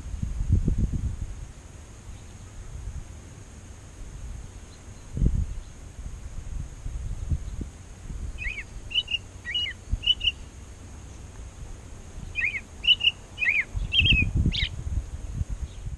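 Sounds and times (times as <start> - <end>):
robin singing whistled notes: 8.4 - 10.5, 12.2 - 14.8.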